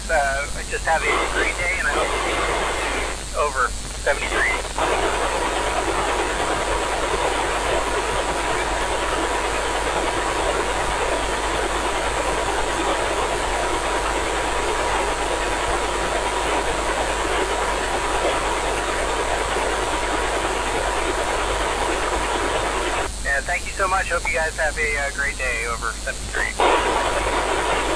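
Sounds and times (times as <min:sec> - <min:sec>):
radio static hiss: 0:00.0 - 0:27.9.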